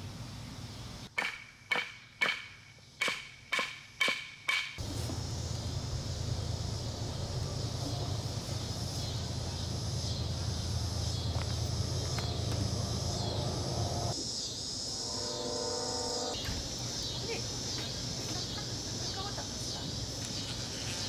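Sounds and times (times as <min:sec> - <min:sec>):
faint pitched drone: 0:04.8 - 0:17.6
insects buzzing: 0:04.8 - 0:21.0
steady low hum: 0:04.8 - 0:21.0.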